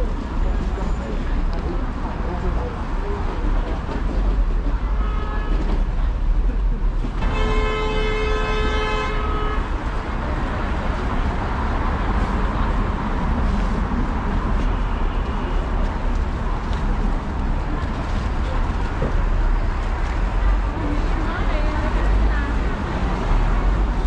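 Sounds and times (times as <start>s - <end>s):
street traffic rumble: 0.0s - 24.0s
vehicle horn blast: 7.2s - 9.7s.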